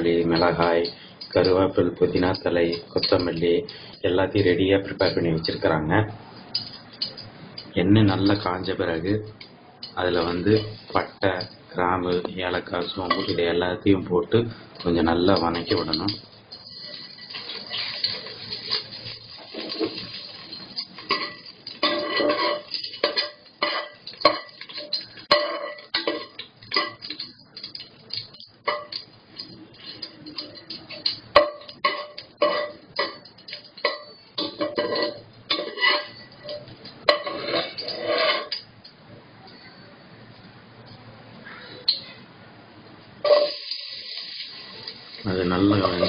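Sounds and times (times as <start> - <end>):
spices sizzling in hot oil: 0.0 - 5.7, 14.6 - 38.7, 43.2 - 46.0
metal ladle scraping a pot: 14.8 - 38.7, 43.2 - 45.0.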